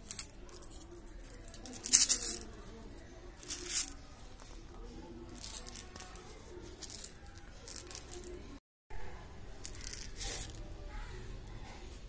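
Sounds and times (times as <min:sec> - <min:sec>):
plastic toy crackling and rattling: 0:00.0 - 0:04.5, 0:05.2 - 0:08.5, 0:09.6 - 0:10.8.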